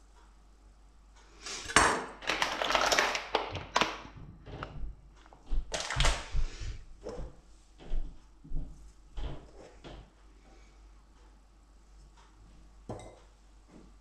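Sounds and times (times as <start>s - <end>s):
plastic packet crinkling: 2.2s - 4.1s, 5.7s - 6.3s.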